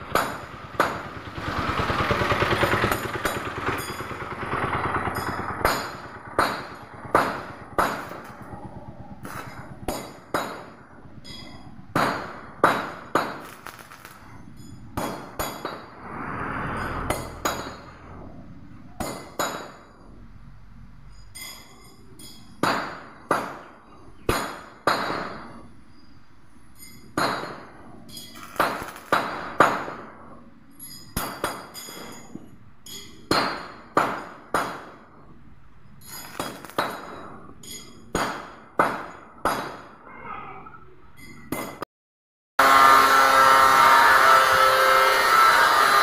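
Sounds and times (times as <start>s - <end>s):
metal tubing being struck: 16.7s - 18.2s.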